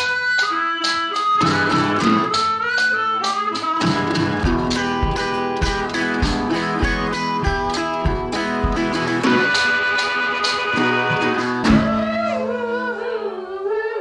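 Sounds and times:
acoustic guitar playing: 0.0s - 13.4s
low steady beat: 3.8s - 9.7s.

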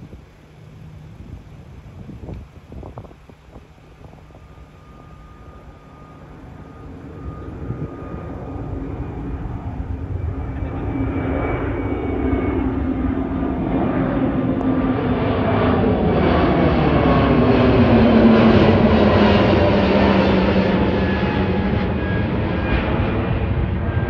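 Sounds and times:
jet passing overhead: 0.0s - 24.0s.

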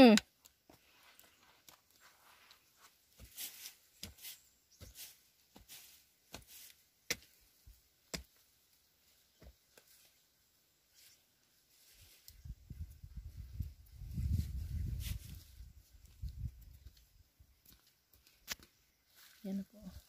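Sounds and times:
rustles: 0.4s - 20.0s.

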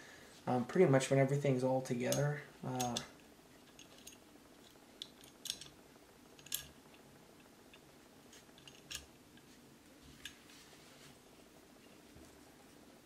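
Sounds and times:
pistol parts clicking: 3.7s - 5.8s, 6.4s - 6.7s.

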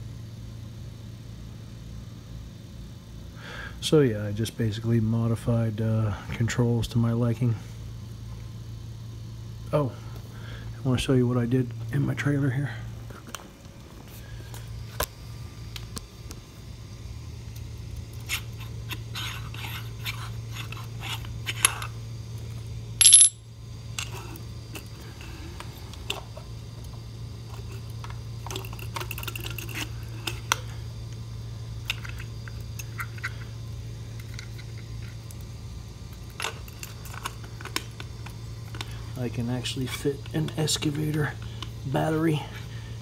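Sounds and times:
steady low hum: 0.0s - 43.0s
short metallic ring: 23.0s - 23.5s.

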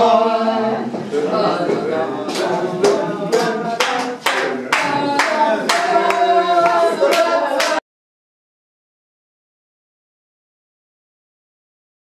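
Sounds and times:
group singing together: 0.0s - 7.8s
hands clapping along: 2.2s - 7.8s.

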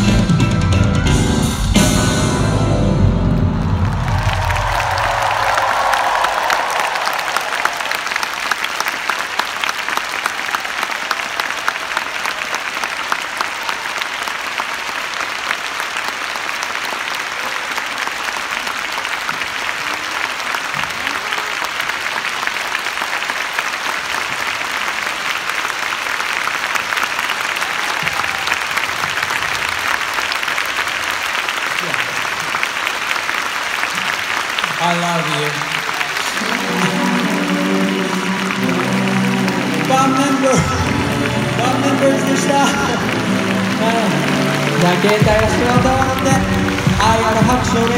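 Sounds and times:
concert music notes: 0.0s - 4.3s, 36.2s - 47.9s
arena crowd applauding: 3.0s - 47.9s.

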